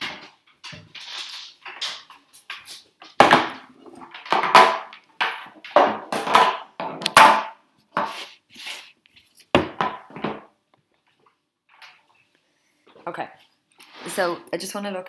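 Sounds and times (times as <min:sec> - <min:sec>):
objects knocking and clattering: 0:00.0 - 0:08.2, 0:09.4 - 0:12.2.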